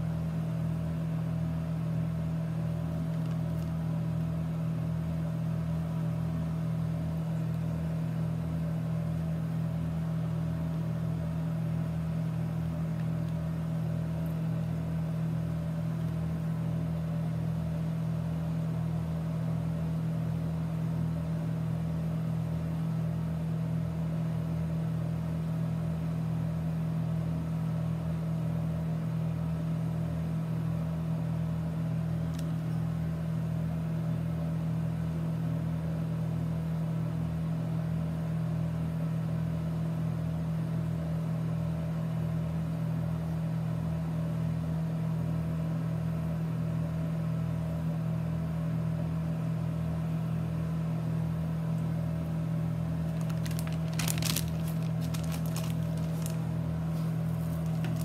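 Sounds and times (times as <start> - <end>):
low motor hum: 50.2 - 58.0.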